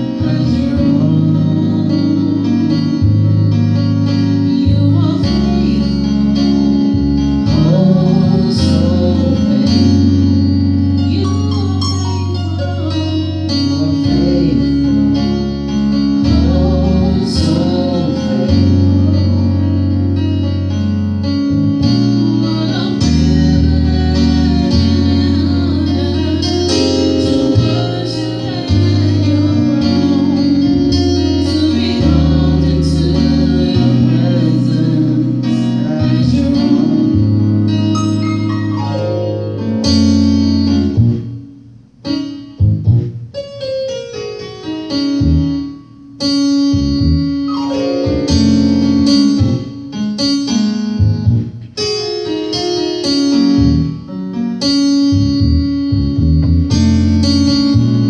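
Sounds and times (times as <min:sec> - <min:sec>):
electric keyboard chords: 0:00.0 - 0:58.0
woman singing into a microphone: 0:22.3 - 0:30.3.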